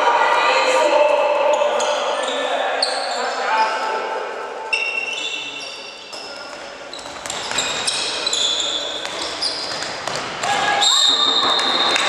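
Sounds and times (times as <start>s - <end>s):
shoes squeaking on wooden floor: 4.7s - 10.4s
ball bouncing: 9.0s - 10.6s.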